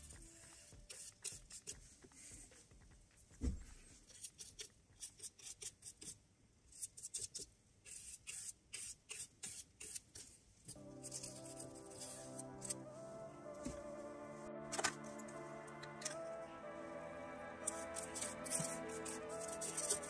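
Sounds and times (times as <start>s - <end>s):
music: 10.7s - 20.0s
paintbrush scratching on wood: 17.6s - 20.0s.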